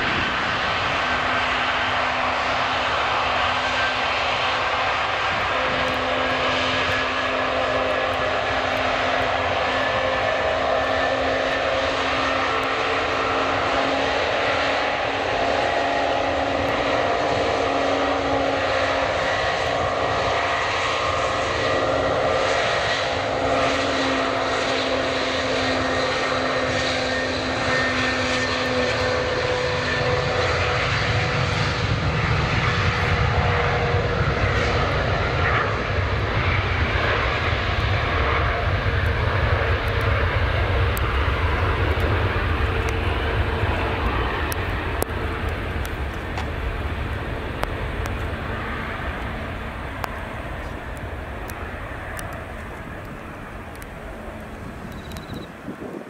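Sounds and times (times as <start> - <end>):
jet engines whining: 0.0 - 56.0
deep low rumble: 34.1 - 56.0.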